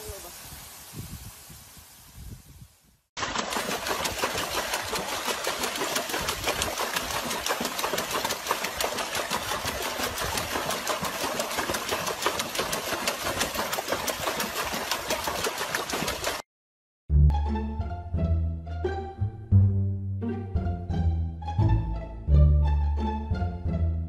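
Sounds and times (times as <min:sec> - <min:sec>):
dog splashing water in tub: 0:03.2 - 0:16.4.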